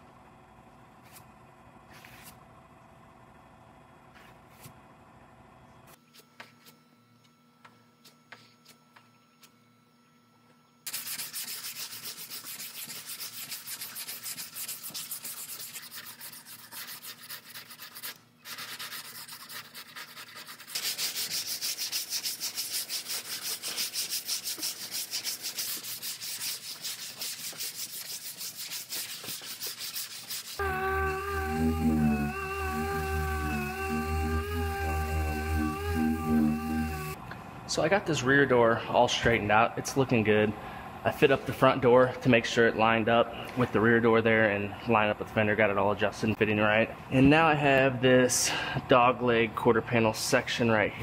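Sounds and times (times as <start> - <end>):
hand sanding strokes: 10.9 - 37.2
music: 30.6 - 37.2.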